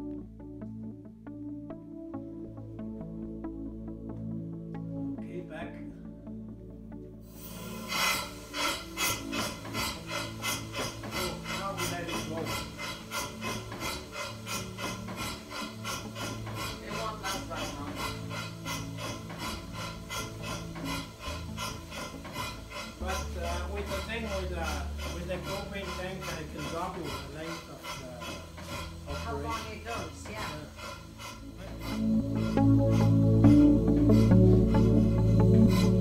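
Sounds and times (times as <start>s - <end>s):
air engine chuffing: 7.3s - 36.0s.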